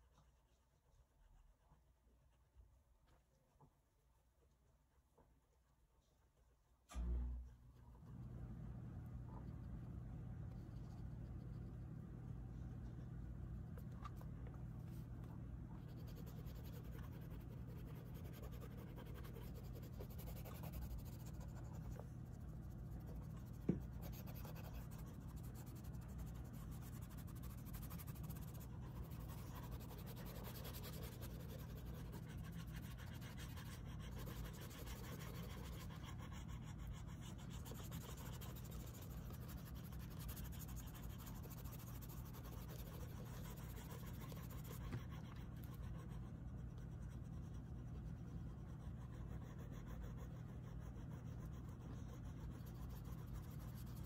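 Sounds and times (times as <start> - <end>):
faint low hum: 0.0 - 54.0
pastel scratching on paper: 12.7 - 54.0.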